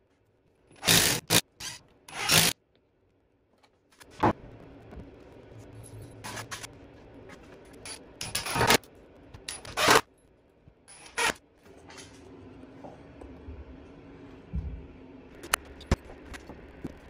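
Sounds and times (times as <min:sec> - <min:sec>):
cordless drill driving screws: 0:00.8 - 0:02.5.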